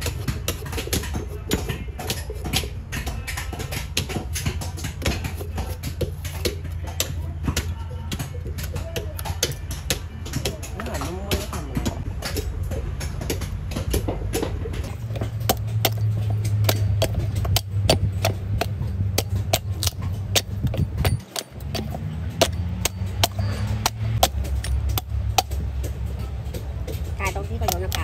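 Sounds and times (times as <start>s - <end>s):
knife chopping coconut husk: 0.0s - 28.0s
steady low hum: 9.5s - 28.0s.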